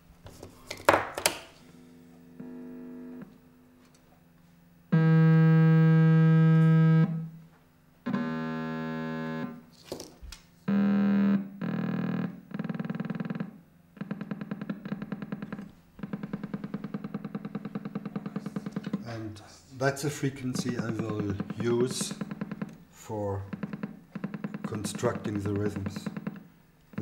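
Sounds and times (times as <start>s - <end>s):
buzzy electronic oscillator tones: 4.9s - 7.4s, 8.0s - 9.6s, 10.7s - 19.0s, 19.9s - 27.0s.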